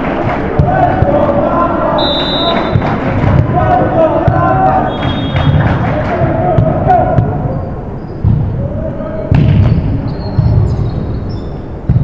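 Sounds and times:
ball bouncing on gym floor: 2.5 - 7.4, 8.2 - 8.5, 9.3 - 10.8
sneakers squeaking: 4.8 - 5.7, 7.4 - 8.4, 9.4 - 12.0.

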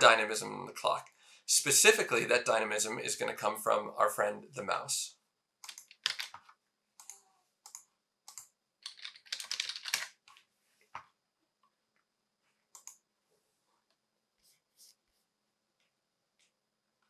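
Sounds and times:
typing on keyboard: 5.6 - 10.3.

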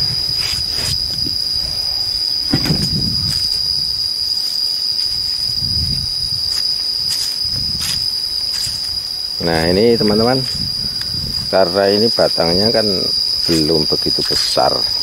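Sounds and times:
insects trilling: 0.0 - 15.0
soft footsteps: 6.5 - 9.0.

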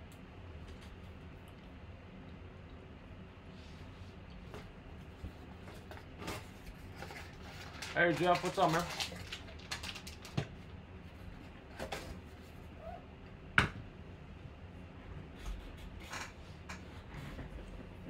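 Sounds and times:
foil packs rustling: 6.4 - 10.5.

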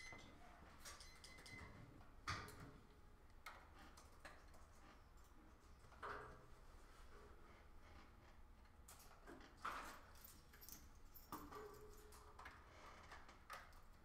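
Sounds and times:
faint irregular clicks and taps: 1.2 - 6.5.

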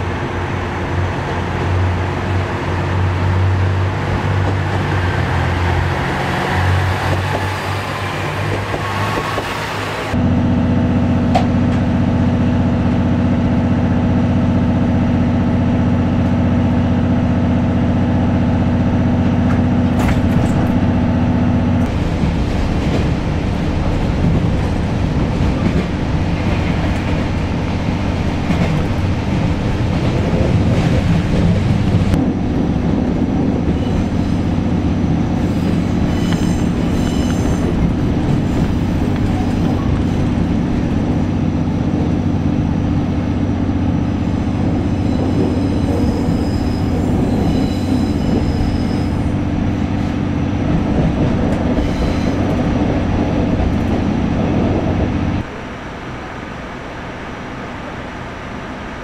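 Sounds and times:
train wheels rolling on rails: 0.0 - 10.2, 11.1 - 55.8
diesel engine hum: 0.0 - 47.6
high-pitched squealing: 44.7 - 49.4.

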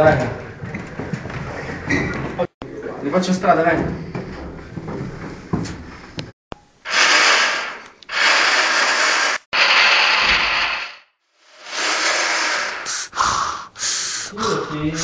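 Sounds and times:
breathy hissing bursts: 6.9 - 15.0.

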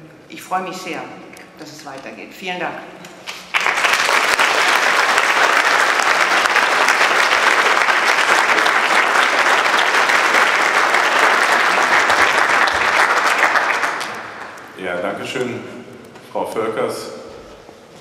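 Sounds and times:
audience applauding: 3.3 - 14.8.

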